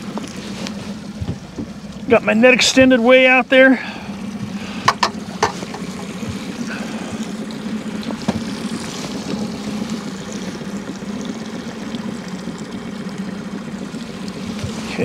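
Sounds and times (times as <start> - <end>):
outboard motor humming: 0.0 - 15.0
light knocks: 4.9 - 6.4.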